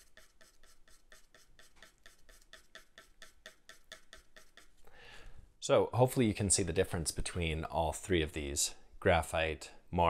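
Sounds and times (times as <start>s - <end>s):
pencil scratching on paper: 0.0s - 4.8s.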